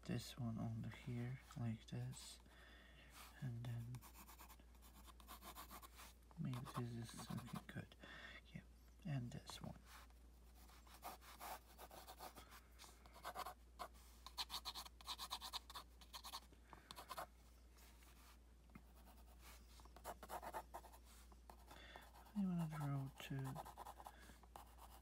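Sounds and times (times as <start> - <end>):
pencil sketching on paper: 4.0 - 7.7, 10.6 - 12.4, 13.1 - 17.3, 18.9 - 25.0.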